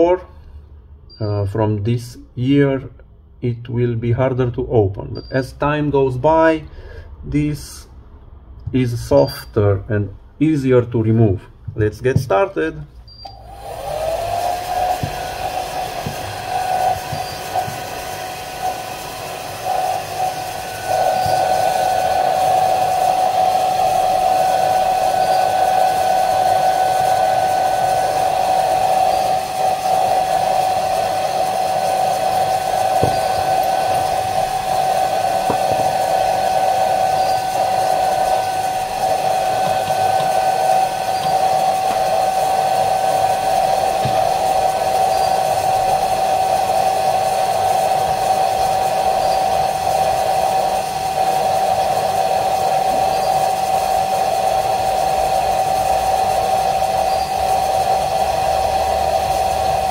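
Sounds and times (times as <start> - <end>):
hair dryer blowing: 13.2 - 59.9.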